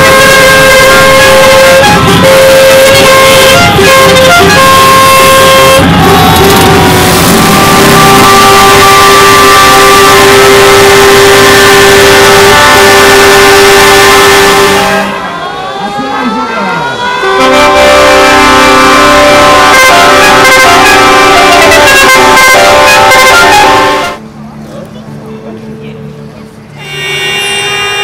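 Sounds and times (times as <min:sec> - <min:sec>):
music with horn-like notes: 0:00.0 - 0:15.1, 0:17.2 - 0:24.2.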